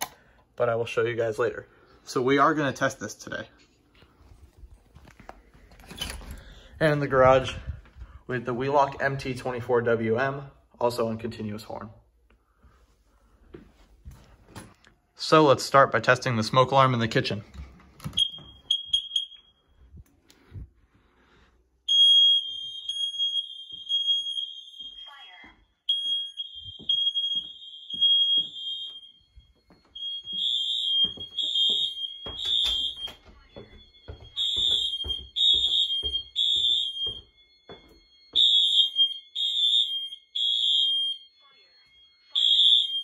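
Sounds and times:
smoke alarm continuous tone: 0.0 - 43.0
smoke alarm short beeps: 18.1 - 19.8, 21.9 - 43.0
footsteps thudding: 26.6 - 38.6.

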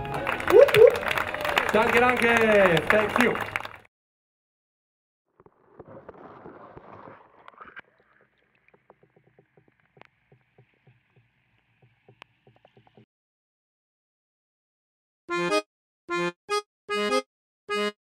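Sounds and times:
water lapping and splashing: 5.7 - 13.0
small clicks and drips: 7.4 - 13.1.

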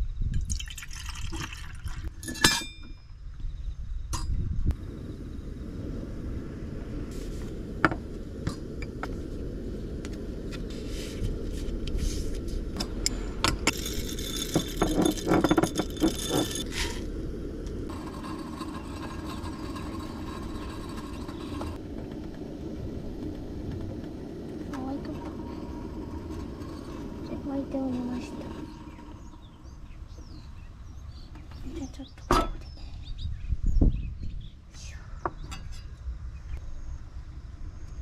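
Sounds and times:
coffee beans in glass grinder: 13.6 - 17.1.

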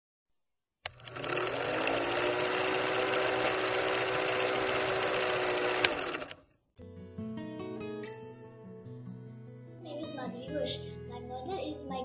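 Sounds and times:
film projector clattering: 0.9 - 6.4.

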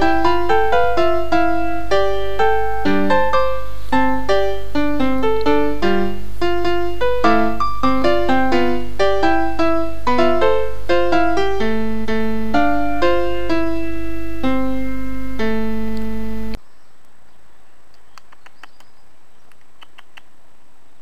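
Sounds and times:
keyboard melody: 0.0 - 16.6
faint clicks: 17.9 - 20.3.

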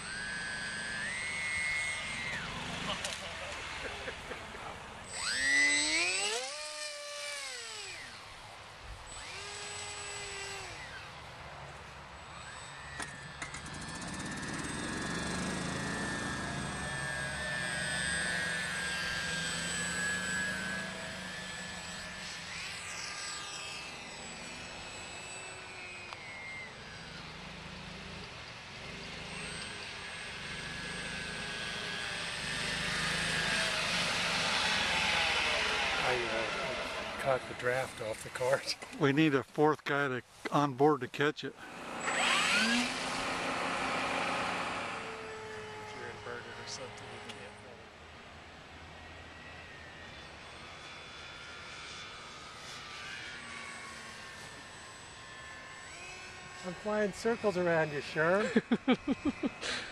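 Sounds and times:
model plane motor whining: 0.0 - 39.2, 41.5 - 59.9.

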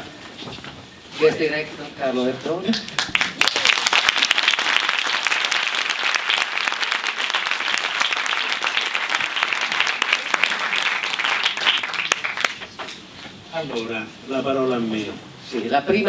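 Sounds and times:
audience applauding: 3.0 - 12.8.

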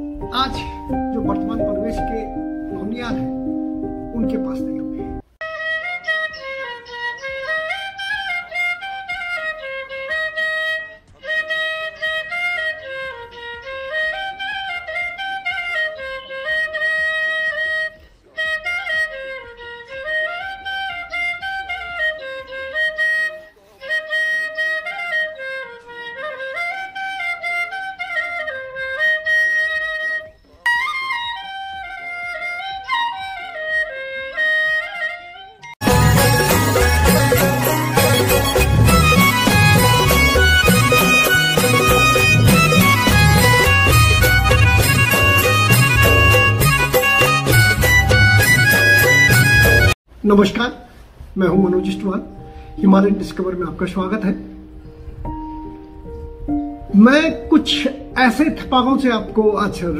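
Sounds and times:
reedy wind instrument melody: 0.0 - 50.0.

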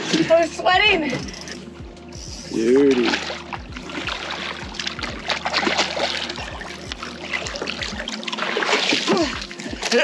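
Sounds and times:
steady low hum: 0.3 - 8.6
fish splashing at the surface: 2.8 - 9.9.

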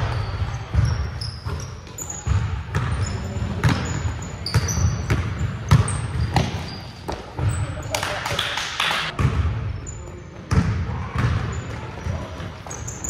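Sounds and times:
basketball bouncing on hardwood floor: 0.0 - 7.5, 10.5 - 11.4
sneaker squeaks: 0.0 - 8.2, 9.1 - 13.0.

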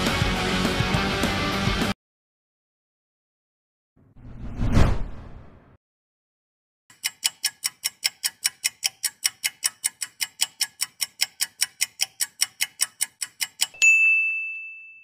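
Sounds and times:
clock ticking rapidly: 6.9 - 13.8.

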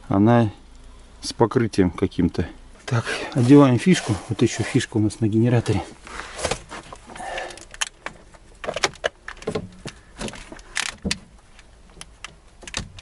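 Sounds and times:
plastic and metal clicks: 7.4 - 13.0.

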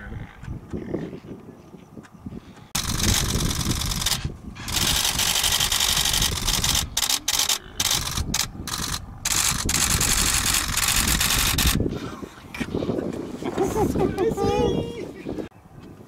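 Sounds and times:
camera shutters clicking rapidly: 2.8 - 11.8.

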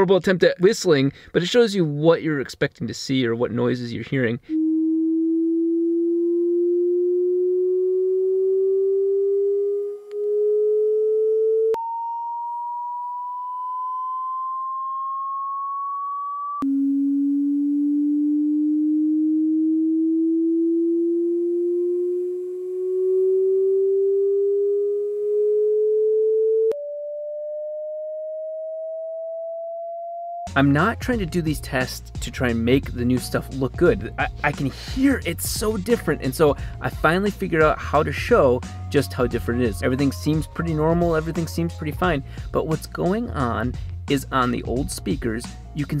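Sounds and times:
sine-wave test tone gliding upward: 4.5 - 30.6.

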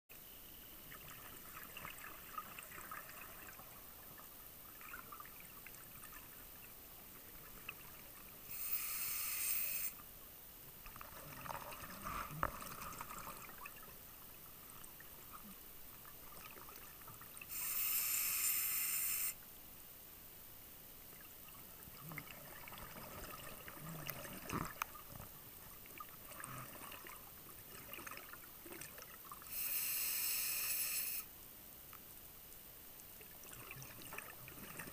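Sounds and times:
faint crackling and clicks: 24.0 - 26.6.

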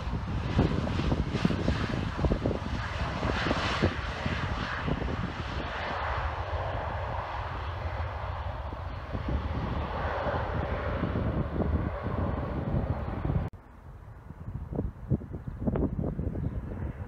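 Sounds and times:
jet engines rushing: 0.0 - 13.6
wind buffeting microphone: 0.0 - 17.0.

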